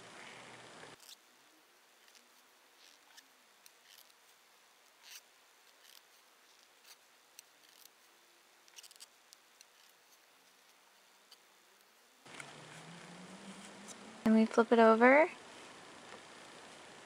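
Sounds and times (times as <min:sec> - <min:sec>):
knitting needles clicking: 0:08.7 - 0:11.4.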